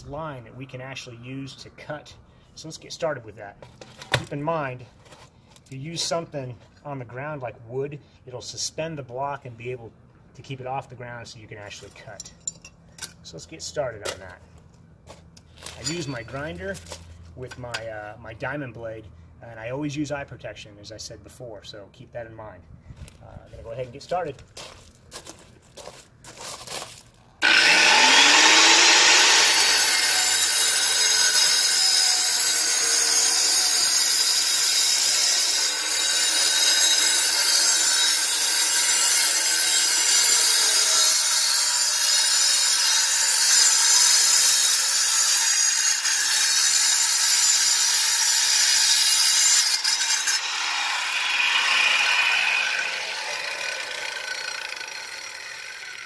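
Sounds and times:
angle grinder cutting concrete: 27.4 - 56.0.

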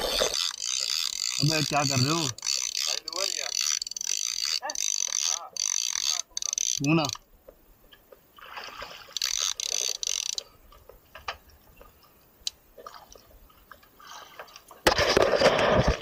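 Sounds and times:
fishing reel winding: 0.0 - 7.2, 9.1 - 10.5
loud water splashing: 8.4 - 9.2.

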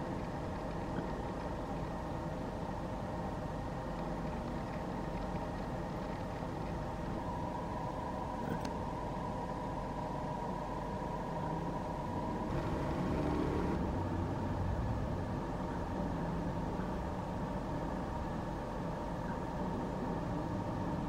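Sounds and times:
mechanical hum: 0.0 - 21.0.

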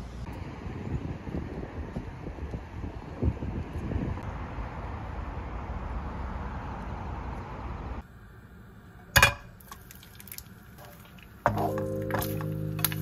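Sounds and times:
wind noise on microphone: 0.2 - 4.3
egg cracking: 9.5 - 13.0.

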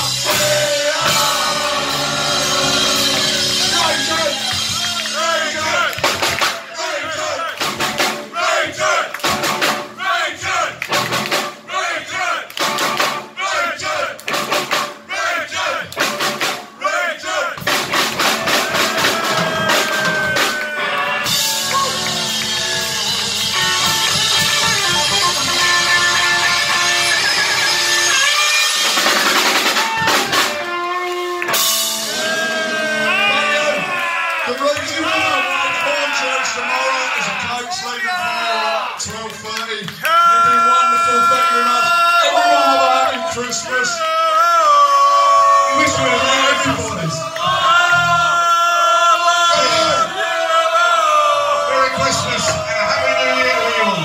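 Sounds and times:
bass guitar: 0.0 - 6.4, 17.8 - 33.7
live rock band playing: 0.0 - 6.7, 7.6 - 8.3, 9.2 - 10.0, 10.8 - 11.7, 12.5 - 13.4, 14.2 - 15.1, 16.0 - 16.8, 17.6 - 33.5
drum hits: 0.0 - 11.8, 12.6 - 16.8, 17.5 - 27.2, 27.8 - 32.4, 51.9 - 53.0
voices shouting along: 0.3 - 7.6, 18.2 - 25.2, 32.0 - 39.0, 40.0 - 54.0
electric guitar: 20.0 - 33.4.

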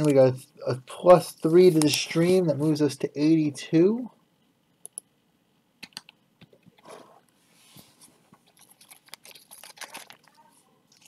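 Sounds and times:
foil wrapper crinkling: 8.5 - 11.0.

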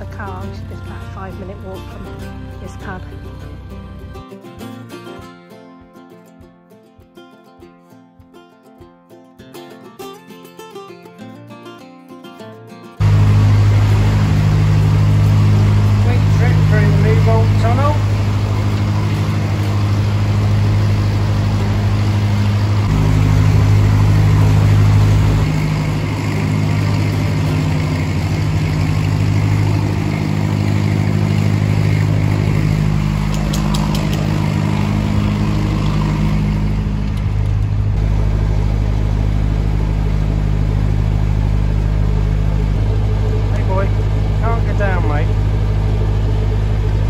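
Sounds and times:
boat diesel engine running: 0.0 - 4.4, 13.0 - 47.0.

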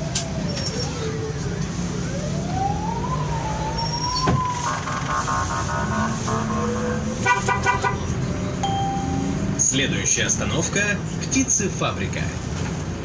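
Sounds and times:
bus engine drone with whine: 0.0 - 13.0
rapid pulsed beeping: 4.6 - 7.4.

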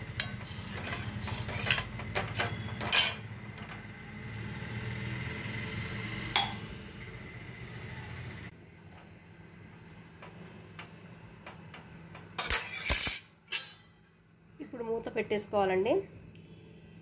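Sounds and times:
ladle clinking in metal pot: 0.2 - 3.3, 6.4 - 6.6, 12.4 - 13.9.

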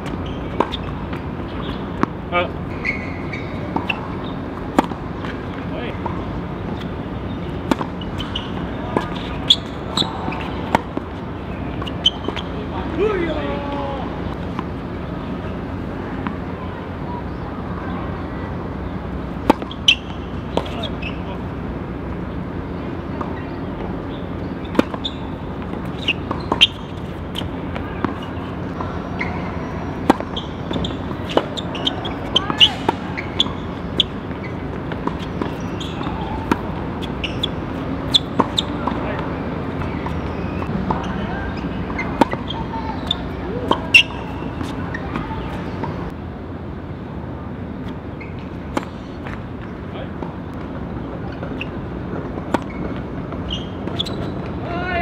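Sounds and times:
rackets hitting tennis balls: 0.0 - 15.4, 19.3 - 22.1, 24.2 - 46.2
shoes squeaking on court: 0.0 - 16.5, 18.0 - 22.4, 23.0 - 46.2, 47.8 - 55.0
steady background hum: 0.0 - 55.0
faint voices: 34.6 - 46.2.

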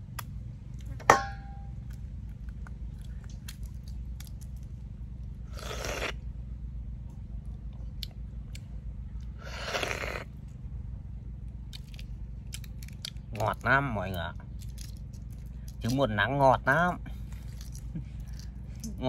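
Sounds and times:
noisy mouth sounds: 5.5 - 6.2.

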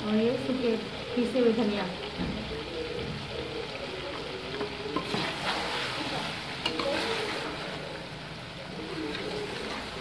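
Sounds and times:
spices sizzling: 0.0 - 10.0
ladle scraping metal pot: 5.0 - 7.8.

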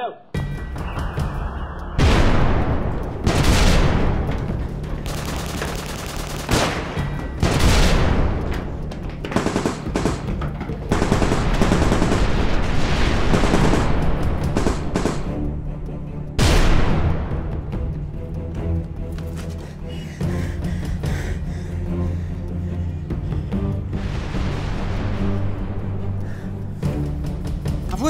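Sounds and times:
music: 0.0 - 28.0
machine-gun fire: 2.0 - 4.3, 5.0 - 8.4, 9.3 - 15.3
heavy booms: 2.0 - 4.6.

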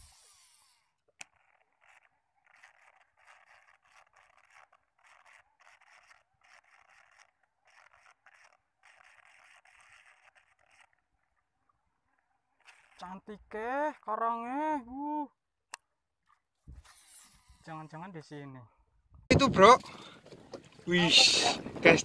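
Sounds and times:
fishing reel cranking: 0.0 - 14.6, 16.8 - 17.7.

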